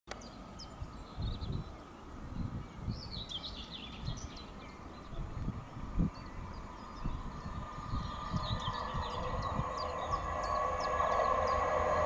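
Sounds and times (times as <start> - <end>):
birds chirping and singing: 0.2 - 12.0
low rumbles: 5.3 - 12.0.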